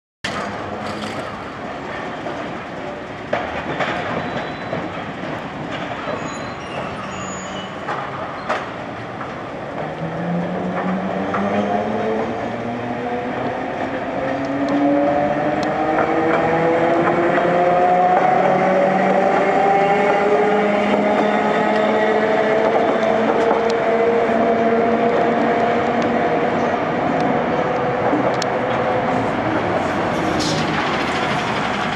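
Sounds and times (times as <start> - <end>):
street noise: 0.2 - 31.9
tram motor whine: 9.9 - 31.9.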